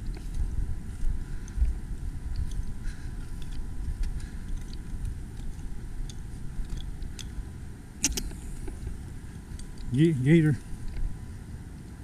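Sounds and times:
steady low rumble: 0:00.0 - 0:12.0
sharp clicks: 0:08.0 - 0:08.8
twigs snapping: 0:08.0 - 0:08.9.

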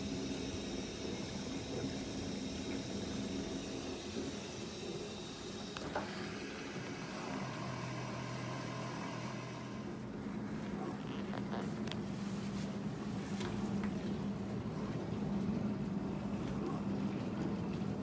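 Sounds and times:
dishwasher pump hum: 0:00.0 - 0:10.9.

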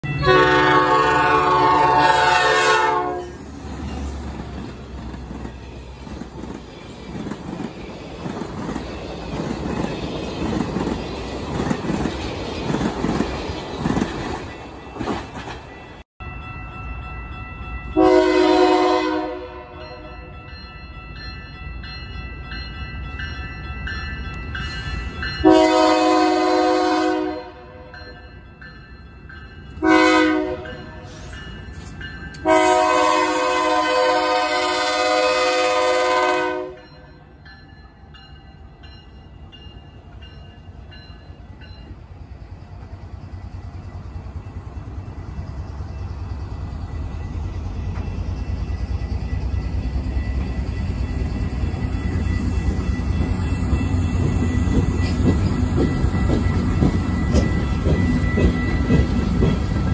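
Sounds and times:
crossing bell ringing: 0:00.0 - 0:59.9
train rumbling and clattering: 0:00.0 - 0:59.9
locomotive air horn: 0:00.2 - 0:03.5, 0:18.0 - 0:20.2, 0:25.4 - 0:27.9, 0:29.8 - 0:31.1, 0:32.4 - 0:36.8.

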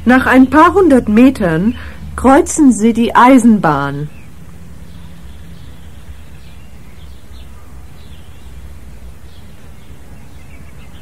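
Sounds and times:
bird chirps: 0:03.9 - 0:11.0.

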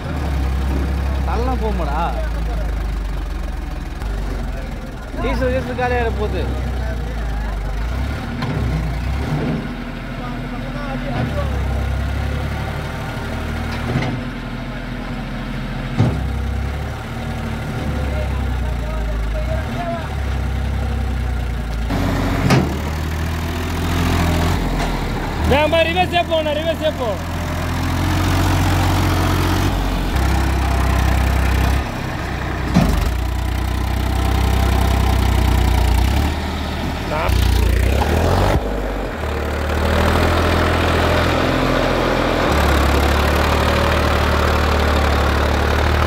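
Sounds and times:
diesel tractor engine droning: 0:00.0 - 0:46.0
short thump: 0:22.4 - 0:22.8.

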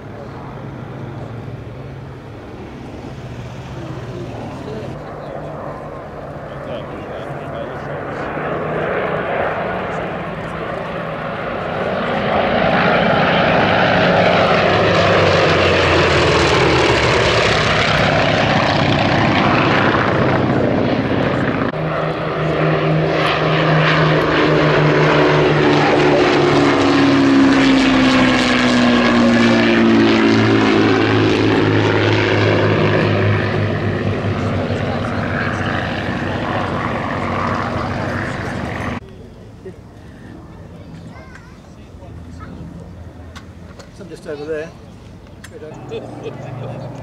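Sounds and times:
propeller planes passing: 0:00.0 - 0:47.0
radial engine planes droning past: 0:00.0 - 0:47.0.

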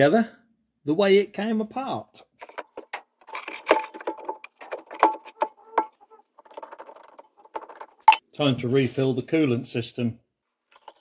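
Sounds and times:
hand tools tapping on metal: 0:02.4 - 0:08.2.

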